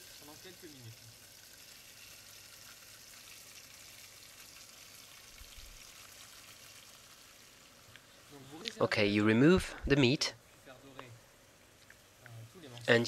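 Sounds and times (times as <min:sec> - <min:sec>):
meat sizzling in oil: 0:00.0 - 0:08.7.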